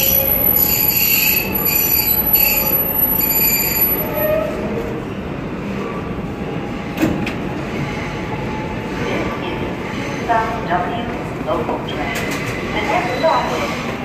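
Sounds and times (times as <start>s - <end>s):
train wheel squeal: 0.0s - 4.8s
subway train rumble and hiss: 0.0s - 14.0s.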